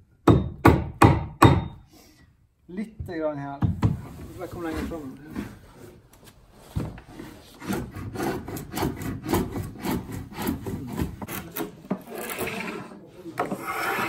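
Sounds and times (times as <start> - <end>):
edge tool scraping wooden board: 7.1 - 14.0.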